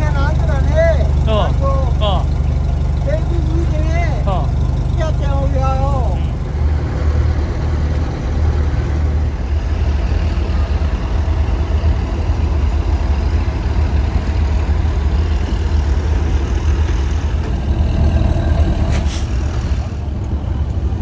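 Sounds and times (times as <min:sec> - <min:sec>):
large engine idling: 0:00.0 - 0:21.0.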